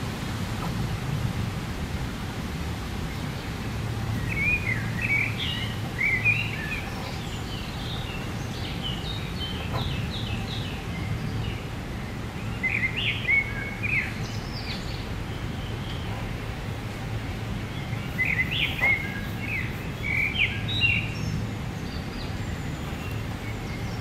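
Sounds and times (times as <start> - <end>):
birds chirping: 2.6 - 24.0.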